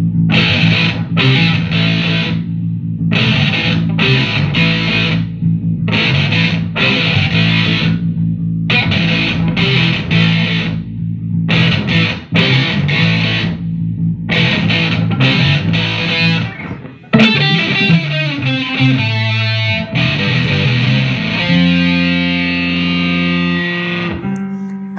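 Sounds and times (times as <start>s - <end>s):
electric bass line: 0.0s - 24.9s
electric guitar chord stabs: 0.0s - 24.9s.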